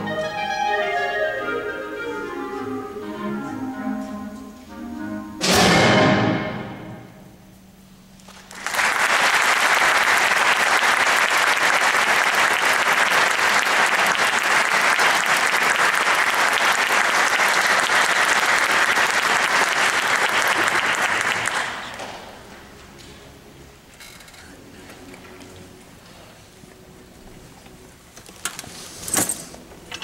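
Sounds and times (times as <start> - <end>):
audience applauding: 8.2 - 22.4.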